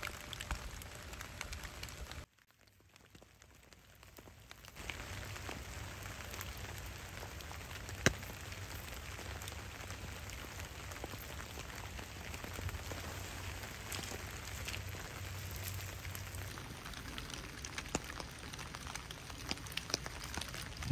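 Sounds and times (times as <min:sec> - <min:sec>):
rain patter with crackling: 0:00.0 - 0:20.9.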